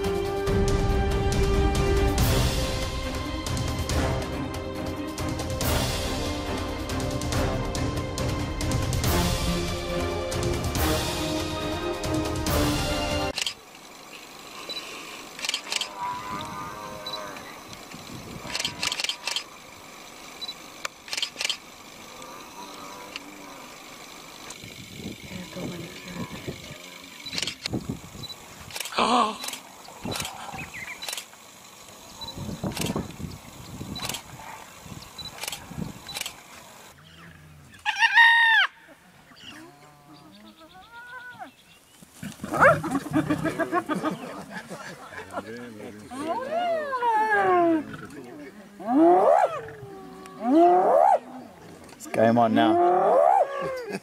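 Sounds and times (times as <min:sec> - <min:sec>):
camera shutter clicks: 0:13.3 - 0:13.6, 0:14.7 - 0:16.0, 0:18.4 - 0:19.5, 0:20.4 - 0:21.7, 0:27.2 - 0:31.4, 0:34.0 - 0:34.3, 0:35.2 - 0:36.4
hyenas whining: 0:14.7 - 0:17.8, 0:37.0 - 0:52.0, 0:52.6 - 0:54.0.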